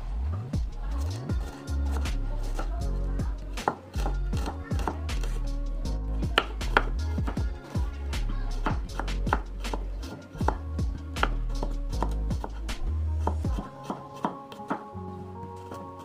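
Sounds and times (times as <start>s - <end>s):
knife tapping on cutting board: 3.6s - 5.0s.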